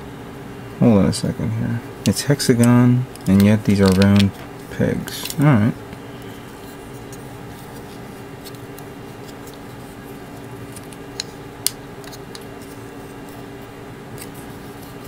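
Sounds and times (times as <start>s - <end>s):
steady low hum: 0.0s - 15.0s
plastic parts pressed together: 2.6s - 4.4s
sharp plastic clicks: 2.6s - 4.4s.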